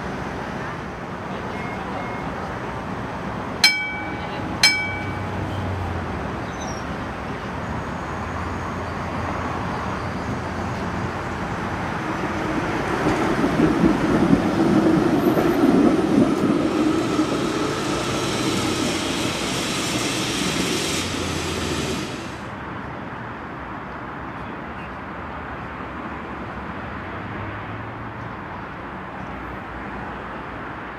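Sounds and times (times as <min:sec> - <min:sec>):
tram wheels rumbling on rails: 0:00.0 - 0:22.5.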